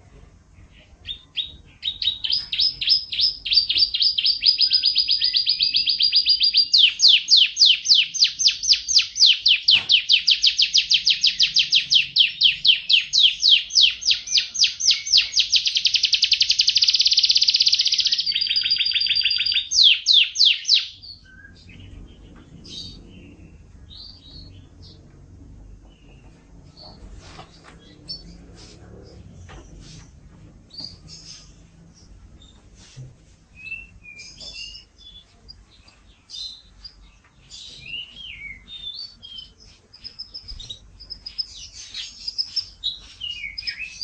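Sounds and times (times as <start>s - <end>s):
soft bird chirps: 0.5s - 25.0s, 33.6s - 44.0s
canary singing rapid trills: 1.0s - 25.0s, 33.7s - 44.0s.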